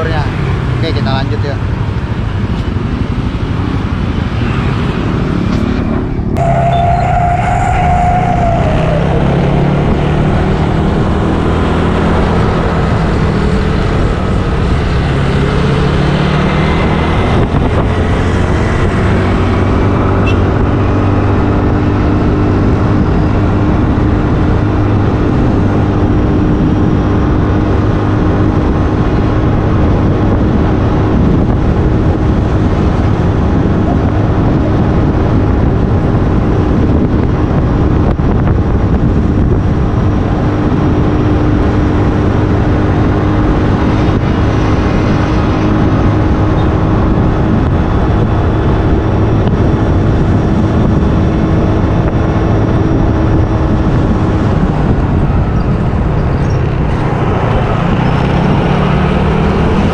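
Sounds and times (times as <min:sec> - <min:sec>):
wind and road noise: 0:00.0 - 0:59.9
short held tone: 0:06.4 - 0:07.5.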